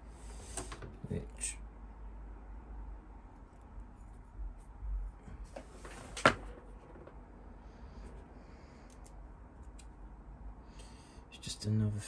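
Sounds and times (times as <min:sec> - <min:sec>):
faint clicks of small parts: 0:08.8 - 0:10.0.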